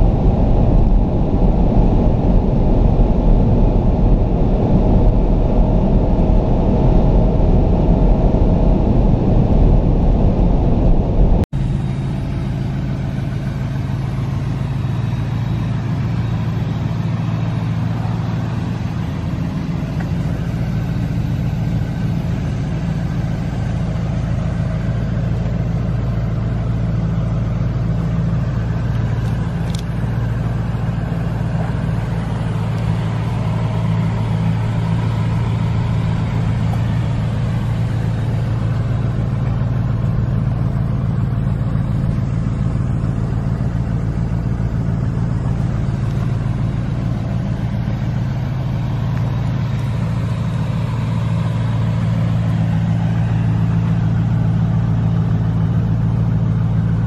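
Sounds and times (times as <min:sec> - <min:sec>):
car engine idling: 0:00.0 - 0:57.0.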